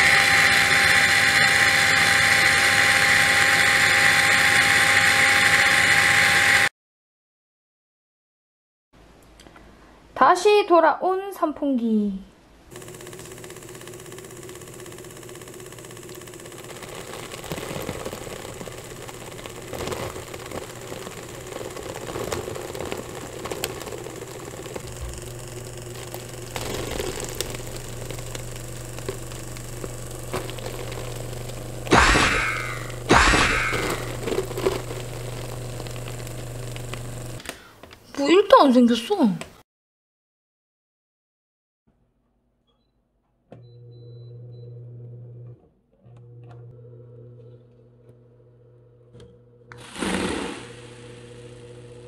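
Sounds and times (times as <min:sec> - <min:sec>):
electric fan motor running: 0:00.0 - 0:06.7, 0:12.7 - 0:37.4, 0:46.2 - 0:52.0
low hum: 0:16.5 - 0:37.4
short sounds falling in pitch: 0:31.9 - 0:34.1.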